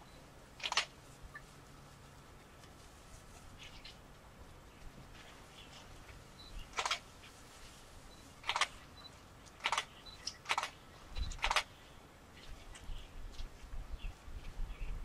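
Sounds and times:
camera shutter clicks: 0:00.6 - 0:00.9, 0:06.7 - 0:07.0, 0:08.4 - 0:08.8, 0:09.6 - 0:11.7.

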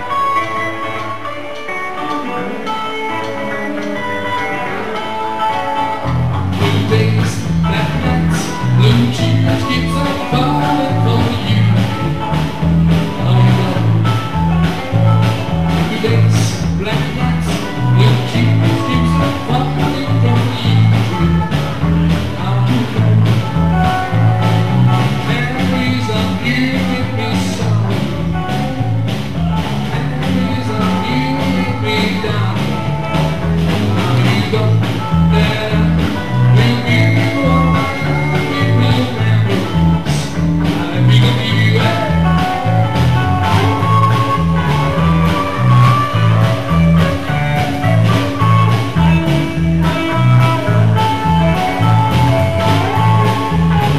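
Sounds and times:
electric bass walking: 0:00.0 - 0:53.9
electric guitar: 0:00.0 - 0:53.9
drum kit steady beat: 0:03.8 - 0:53.9.

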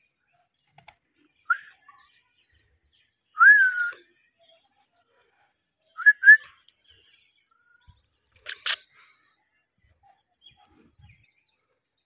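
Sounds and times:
parakeet harsh hissy sounds: 0:08.5 - 0:08.8
parakeet high chirps: 0:08.5 - 0:08.8.

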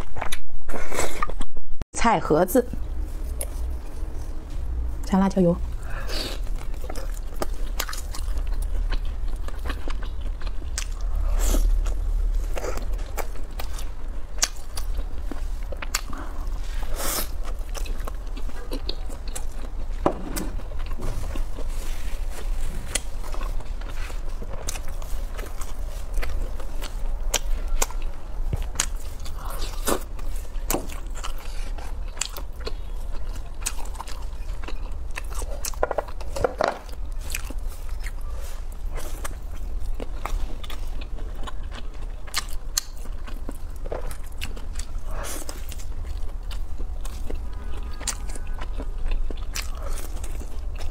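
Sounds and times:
biting and chewing food: 0:05.8 - 0:50.9.

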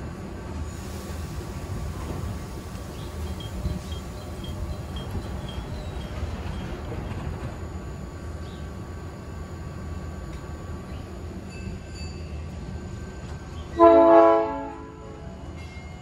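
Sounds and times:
train low rumble and hum: 0:00.0 - 0:16.0.

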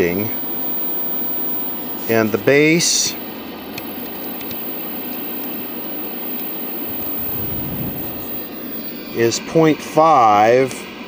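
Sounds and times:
steady hissing noise: 0:00.0 - 0:11.0
faint ticks: 0:00.3 - 0:09.0.

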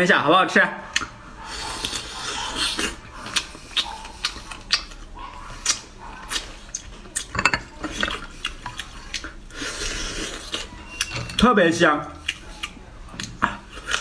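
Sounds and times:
man chewing and lip smacking: 0:00.9 - 0:01.2, 0:01.8 - 0:11.4, 0:12.2 - 0:14.0.

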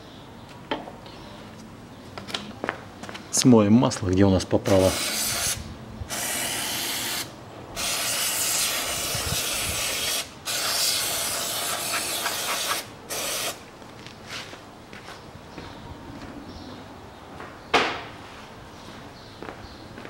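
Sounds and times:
aerosol spray hissing: 0:04.7 - 0:13.6.

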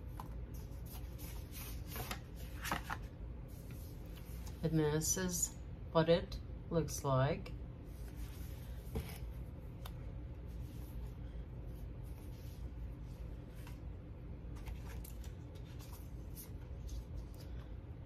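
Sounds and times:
low steady hum: 0:00.0 - 0:18.0.

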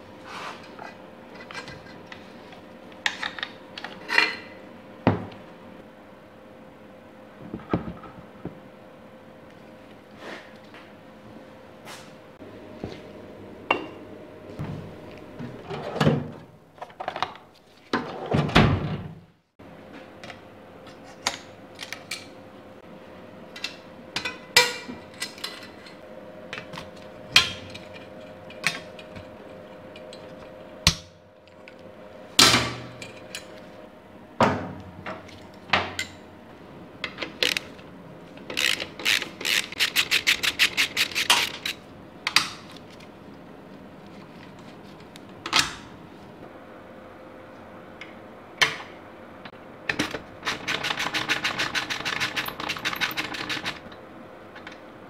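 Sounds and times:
ratchet clicking: 0:38.5 - 0:41.8.

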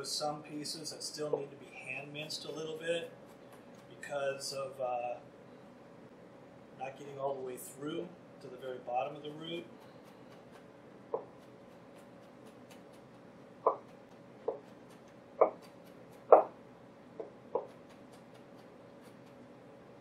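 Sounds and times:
knife chopping on cutting board: 0:09.7 - 0:16.6, 0:17.2 - 0:19.4.

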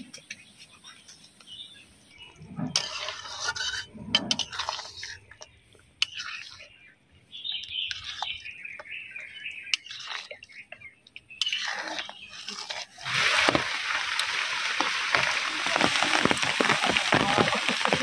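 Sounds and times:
hot oil sizzling and popping: 0:11.4 - 0:18.0.

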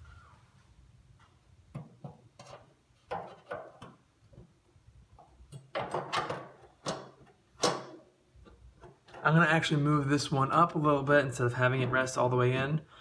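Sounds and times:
metal clunks and knocks: 0:01.7 - 0:04.5, 0:05.2 - 0:09.2.

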